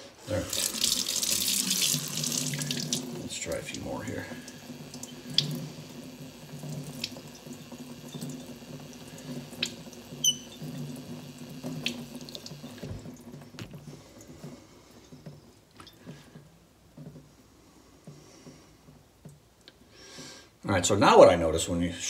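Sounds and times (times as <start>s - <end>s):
faucet running water: 0.0s - 14.8s.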